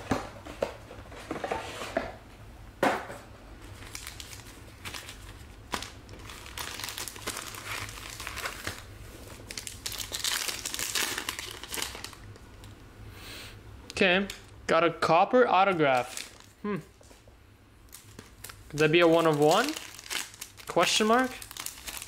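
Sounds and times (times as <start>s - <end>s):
foil wrapper crinkling and tearing: 3.7s - 12.4s, 15.8s - 16.6s, 17.9s - 22.0s.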